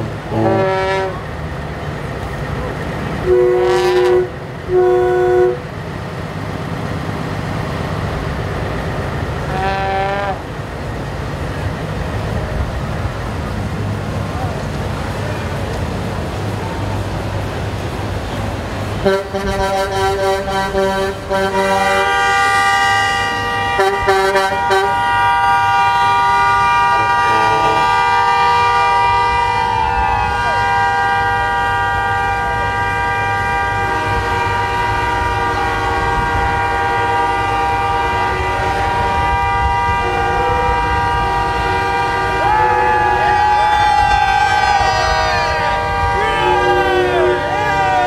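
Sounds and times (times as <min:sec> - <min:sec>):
loud horn: 0:00.0 - 0:01.3, 0:03.2 - 0:05.7, 0:09.4 - 0:10.4, 0:18.9 - 0:48.0
truck air horns sounding: 0:00.0 - 0:01.3, 0:03.2 - 0:05.7, 0:09.4 - 0:10.5, 0:18.4 - 0:48.0.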